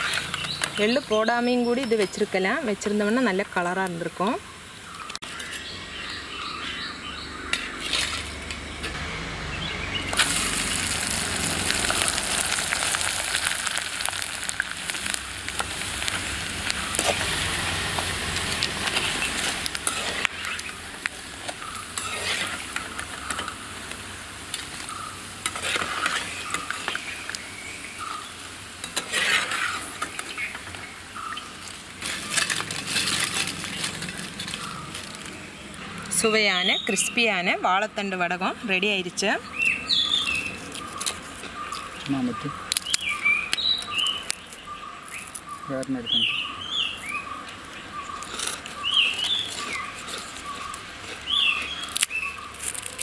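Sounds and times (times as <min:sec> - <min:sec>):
food deep-frying in sizzling oil: 0:00.0 - 0:05.4, 0:09.8 - 0:53.0
ladle clinking and scraping pan: 0:28.8 - 0:30.3.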